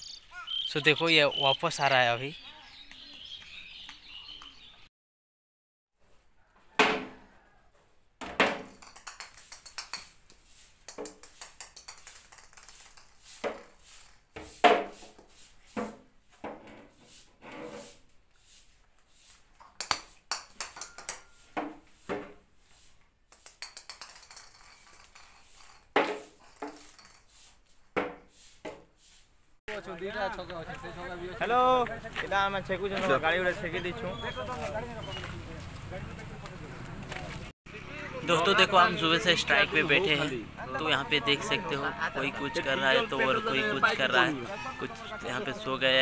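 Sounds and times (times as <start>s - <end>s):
plastic toy bat clattering on tiles: 8.6s - 10.2s, 10.9s - 13.2s, 19.7s - 21.3s, 23.4s - 27.3s.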